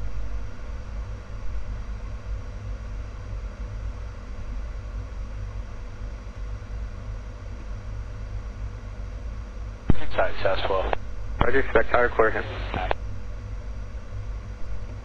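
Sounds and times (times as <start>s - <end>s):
jet engine low rumble: 0.0s - 15.0s.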